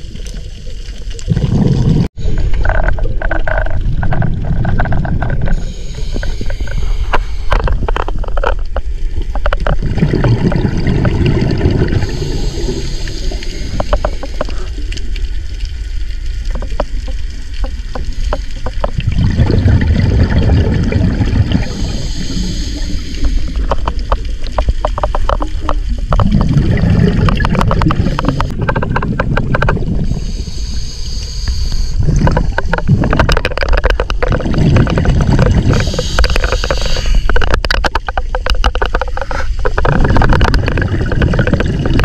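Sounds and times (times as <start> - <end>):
sharp clicks and crackles: 0.0 - 19.2, 19.8 - 42.0
rumbling exhaust bubbles: 1.2 - 8.8, 9.4 - 15.0, 16.5 - 30.7, 31.9 - 42.0
scuba regulator hissing: 21.6 - 23.6, 30.1 - 32.0, 35.7 - 37.3.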